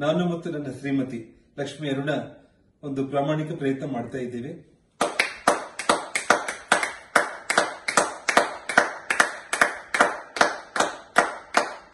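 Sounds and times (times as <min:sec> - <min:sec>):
people clapping hands: 0:05.0 - 0:11.9.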